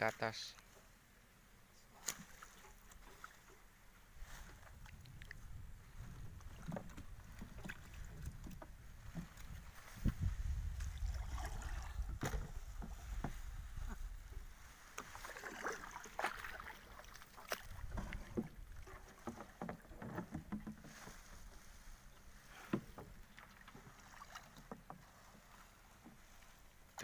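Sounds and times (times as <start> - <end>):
boat engine rumble: 0.8 - 27.0
light water splashing: 1.8 - 27.0
knocks and clatter on hull: 4.4 - 21.9, 22.6 - 26.4.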